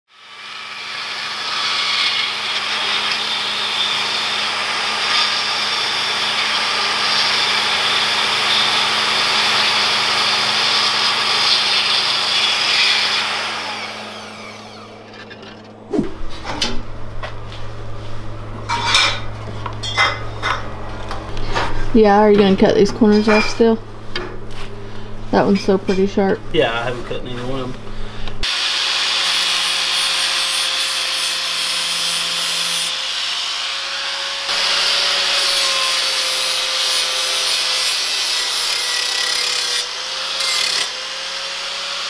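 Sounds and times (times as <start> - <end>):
band saw cutting metal: 0.1 - 15.8, 28.4 - 42.0
low hum: 13.6 - 28.4.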